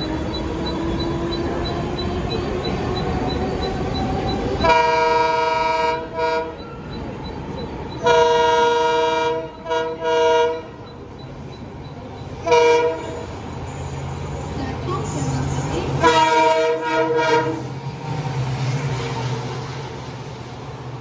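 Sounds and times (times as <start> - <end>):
train rumble: 0.0 - 21.0
locomotive air horn: 4.6 - 6.6, 8.0 - 10.7, 12.4 - 13.3, 16.0 - 17.7.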